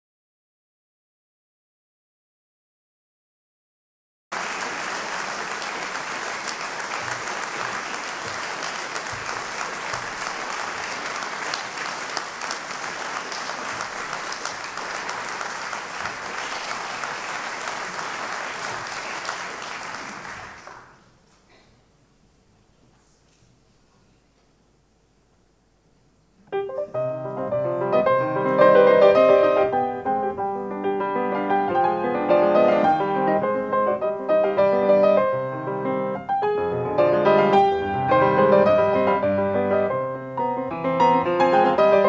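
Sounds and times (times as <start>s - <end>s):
audience applauding: 4.3s - 21.1s.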